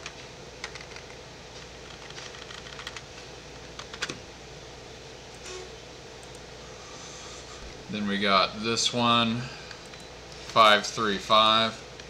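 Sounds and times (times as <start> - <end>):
keyboard typing: 0.0 - 1.2, 1.8 - 3.1, 3.8 - 4.2
faint steady hum: 0.0 - 12.0.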